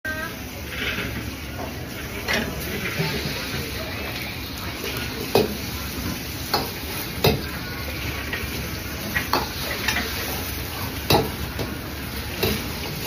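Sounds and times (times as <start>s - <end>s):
egg sizzling in a wok: 0.1s - 13.0s
ladle clanking against wok: 5.3s - 7.5s, 9.0s - 13.0s.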